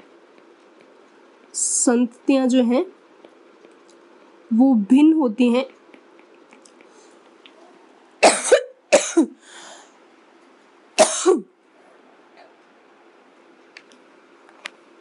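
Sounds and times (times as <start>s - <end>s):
soft breath: 6.8s - 7.8s, 9.4s - 10.0s
woman coughing: 8.2s - 9.4s, 11.0s - 11.5s.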